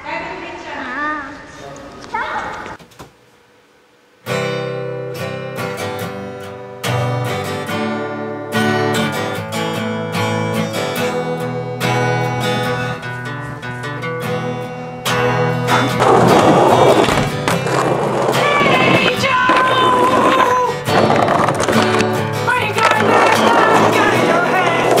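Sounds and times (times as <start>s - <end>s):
acoustic guitar strumming chords: 4.2s - 25.0s.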